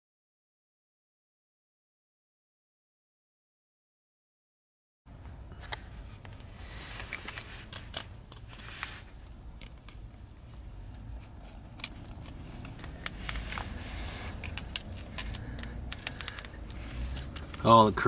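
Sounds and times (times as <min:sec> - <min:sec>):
low steady rumble: 0:05.1 - 0:18.0
light handling clicks and scrapes: 0:05.6 - 0:17.9.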